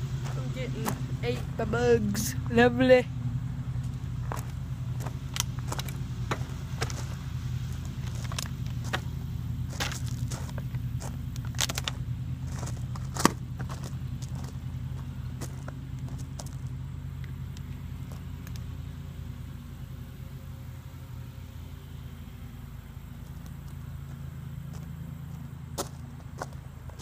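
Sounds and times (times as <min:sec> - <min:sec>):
lawn mower engine drone: 0:00.0 - 0:27.0.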